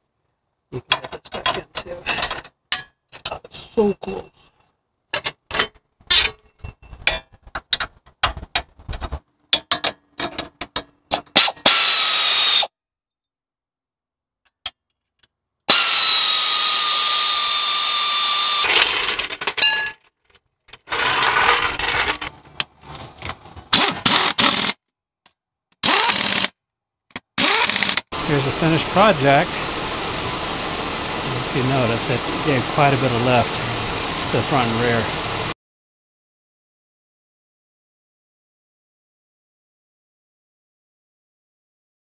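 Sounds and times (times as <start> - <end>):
air impact wrench bursts: 11.4 - 12.7, 15.7 - 19.1, 23.7 - 24.8, 25.8 - 26.5, 27.4 - 28.1
air ratchet running: 11.4 - 12.7, 15.7 - 18.7, 23.8 - 24.8, 25.8 - 26.5, 27.4 - 28.1.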